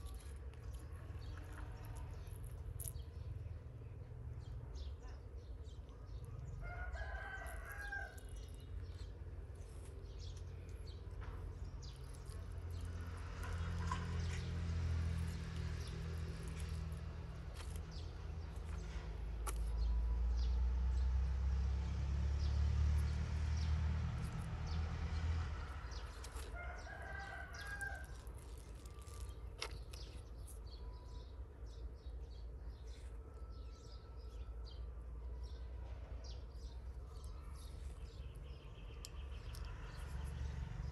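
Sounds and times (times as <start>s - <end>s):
rooster crowing: 6.6s - 8.2s, 26.5s - 28.2s.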